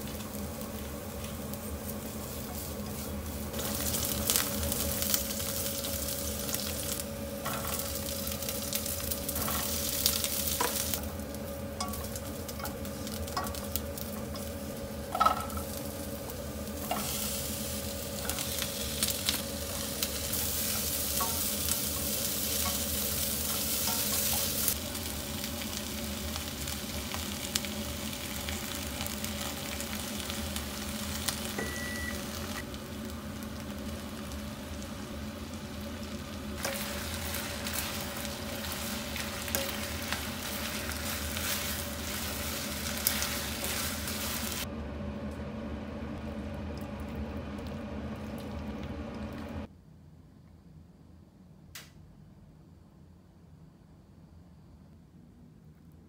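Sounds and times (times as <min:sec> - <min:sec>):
food sizzling in wok: 0:00.0 - 0:44.7
spatula scraping wok: 0:36.6 - 0:44.6.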